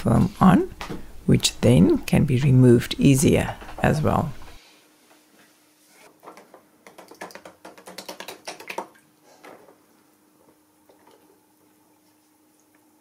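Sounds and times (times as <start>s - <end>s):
faint steady hum: 0.0s - 6.8s, 9.0s - 13.0s.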